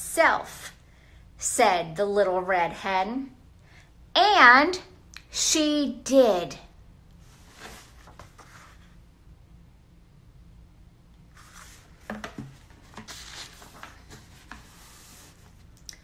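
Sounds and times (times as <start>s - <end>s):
paper rustling: 7.4s - 8.9s, 11.3s - 15.8s.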